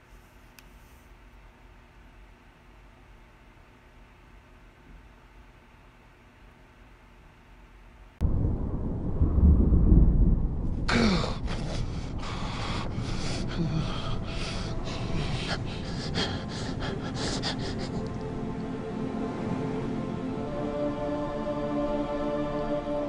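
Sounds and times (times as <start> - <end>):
low rumble: 8.2 - 20.6
steady rushing noise: 8.2 - 21.6
man gasping and breathing: 10.9 - 18.3.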